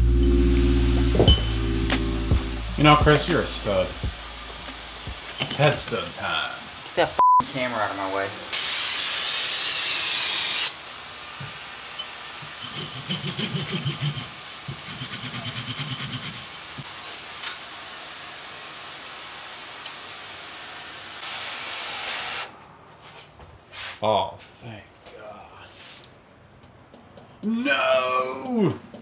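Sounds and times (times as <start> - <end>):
ultrasonic cleaner hissing: 0.0 - 22.5
aerosol can spraying: 3.0 - 22.5.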